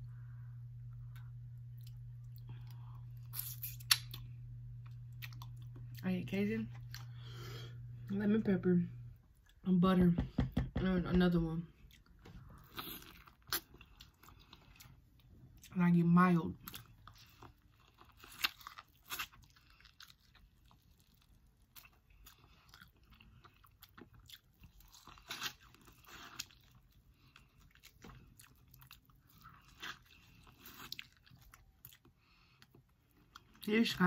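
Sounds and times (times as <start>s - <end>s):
crunchy chewing of corn: 16.6s - 33.6s.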